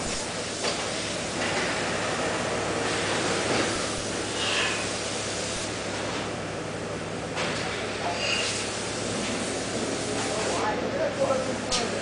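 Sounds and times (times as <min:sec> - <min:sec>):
machinery rushing hiss: 0:00.0 - 0:05.8.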